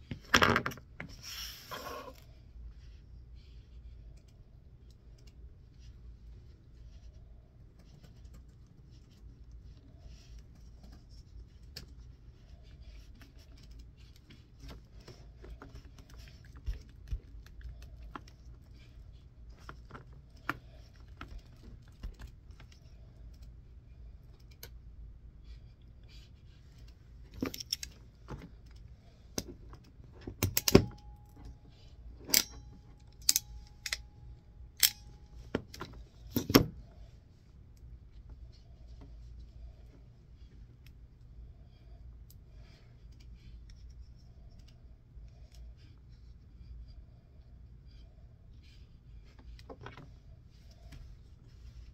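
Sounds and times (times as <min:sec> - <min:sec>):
small parts clicking and rattling: 0:26.7 - 0:31.6, 0:32.2 - 0:36.6.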